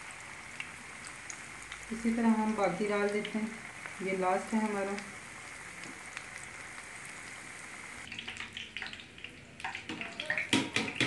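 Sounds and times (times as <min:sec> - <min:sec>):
food deep-frying in oil: 0:00.0 - 0:11.0
sharp crackles and clicks: 0:00.6 - 0:10.5.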